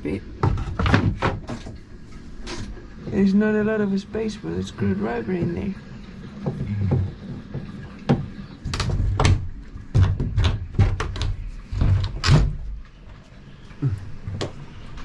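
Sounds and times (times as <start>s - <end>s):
knocks and clicks on wooden door: 6.5s - 12.7s.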